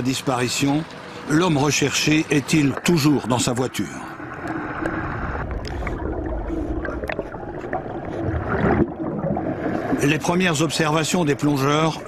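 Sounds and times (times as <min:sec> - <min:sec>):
water gurgling: 0:00.0 - 0:12.0
underwater low rumble: 0:02.3 - 0:10.8.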